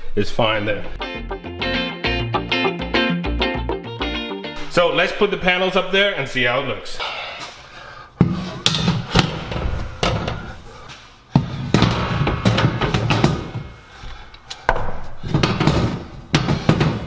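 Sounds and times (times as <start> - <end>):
background music: 0.9 - 4.8.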